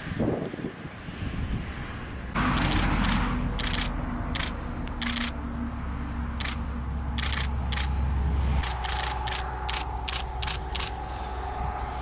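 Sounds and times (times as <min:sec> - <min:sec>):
camera shutter clicks: 0:02.6 - 0:05.4, 0:07.2 - 0:07.9, 0:08.6 - 0:11.0.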